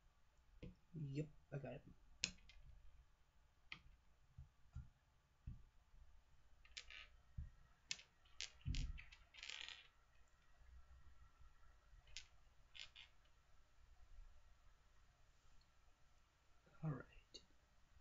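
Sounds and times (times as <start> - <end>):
small objects clicking on desk: 2.2 - 2.7, 6.6 - 7.2, 7.9 - 10.3, 12.0 - 13.3.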